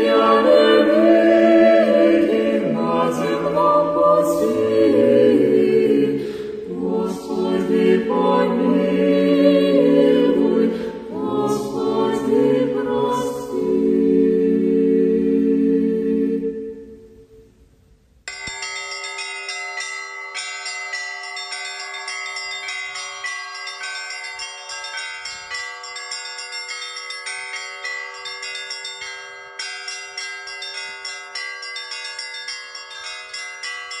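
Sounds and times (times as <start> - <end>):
large bell humming: 18.3 - 34.0
small church bells pealing: 18.3 - 34.0.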